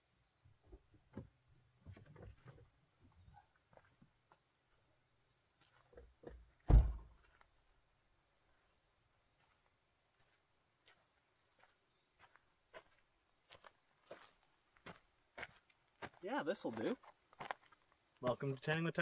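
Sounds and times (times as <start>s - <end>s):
car door shutting: 6.7s - 7.1s.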